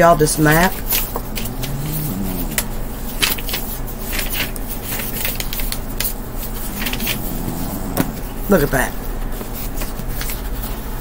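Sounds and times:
steady low hum: 0:00.7 - 0:04.2, 0:04.9 - 0:09.3.

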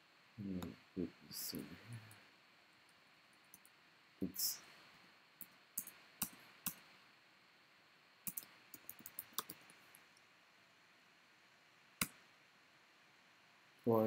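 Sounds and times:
keyboard keys clicking: 0:08.3 - 0:09.7.

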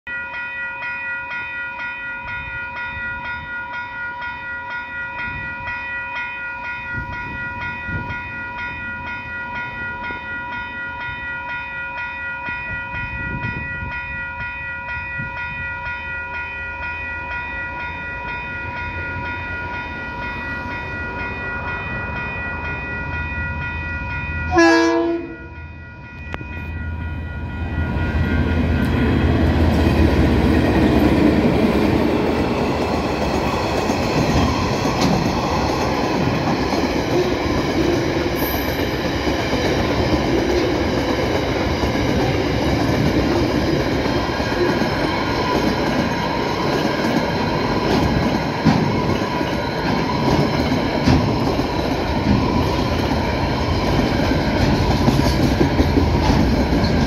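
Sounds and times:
crossing alarm bells ringing: 0:00.1 - 0:57.0
train engine and wheels rumbling: 0:01.9 - 0:57.0
train horn blast: 0:24.5 - 0:25.6.

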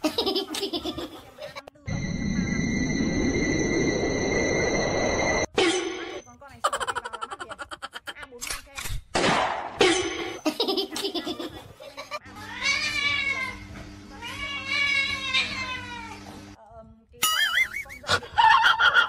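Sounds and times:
short warbling tone: 0:01.9 - 0:06.2
steady low hum: 0:01.9 - 0:07.2.

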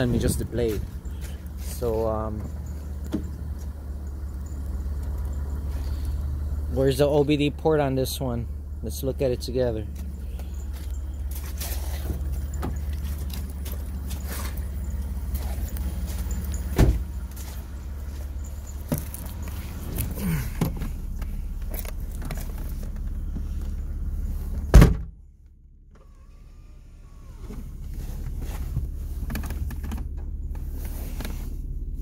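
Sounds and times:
low outdoor rumble: 0:00.0 - 0:32.0
car door shutting: 0:02.3 - 0:03.7, 0:11.5 - 0:17.7, 0:24.5 - 0:25.2.

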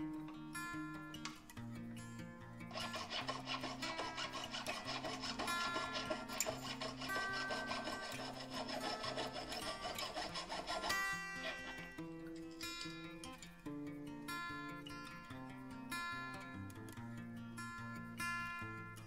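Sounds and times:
acoustic guitar music: 0:00.0 - 0:19.0
hand tool working metal: 0:02.7 - 0:13.1.

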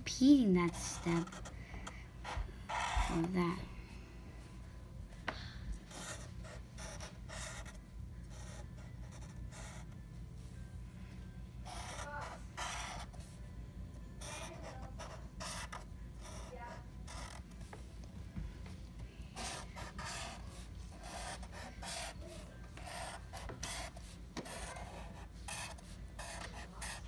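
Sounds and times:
marker scratching on paper: 0:00.4 - 0:03.6, 0:05.8 - 0:10.0, 0:11.6 - 0:13.4, 0:14.2 - 0:17.9, 0:19.4 - 0:27.0.

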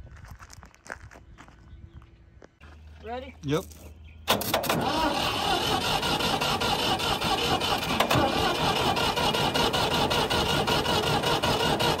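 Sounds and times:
tractor engine idling: 0:04.3 - 0:12.0.

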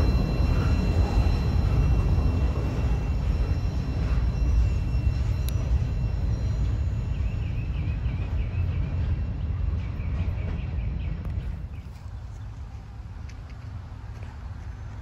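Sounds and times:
thin wavering high note: 0:00.0 - 0:08.6
train car rumbling on rails: 0:00.0 - 0:15.0.

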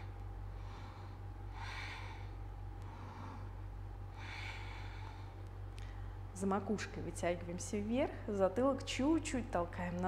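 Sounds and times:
woman breathing: 0:00.0 - 0:06.4.

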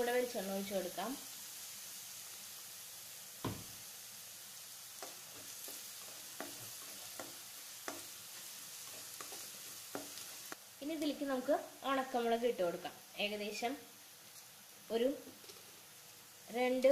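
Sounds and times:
shallots sizzling in oil: 0:00.0 - 0:16.9
spatula knocking against pan: 0:05.0 - 0:08.1.

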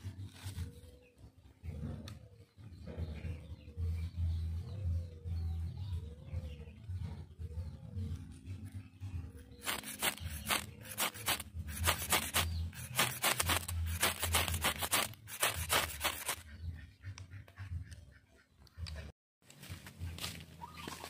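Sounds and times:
steel striker scraping ferro rod: 0:09.6 - 0:16.4.

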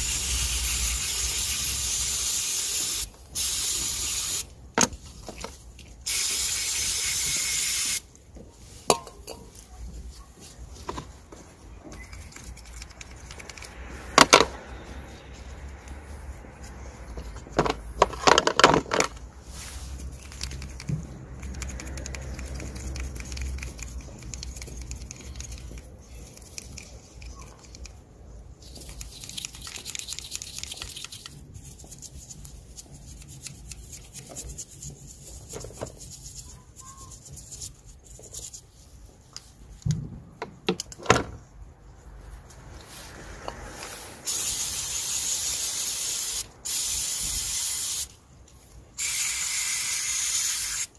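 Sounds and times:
aerosol spray hissing: 0:00.0 - 0:04.5, 0:06.1 - 0:08.0, 0:44.2 - 0:48.1.

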